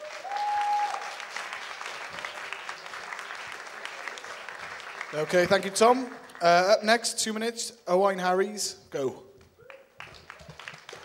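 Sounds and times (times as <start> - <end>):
audience applauding: 0.0 - 6.8, 9.6 - 11.0.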